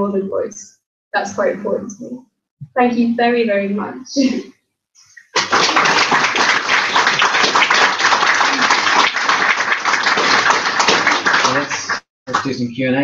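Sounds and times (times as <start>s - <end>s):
audience applauding: 5.2s - 12.7s.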